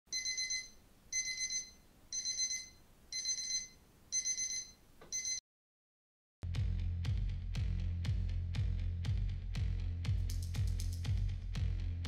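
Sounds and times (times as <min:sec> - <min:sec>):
phone alarm beeping: 0:00.1 - 0:05.4.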